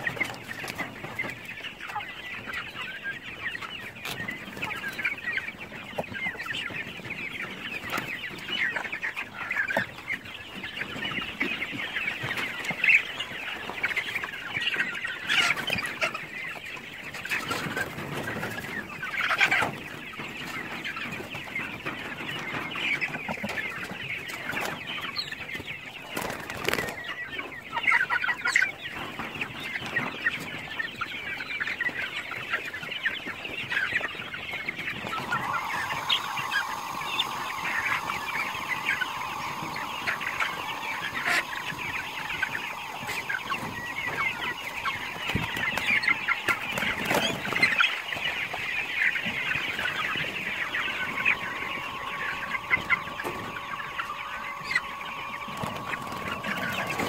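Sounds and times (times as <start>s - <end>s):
chickens clucking: 0.0s - 57.0s.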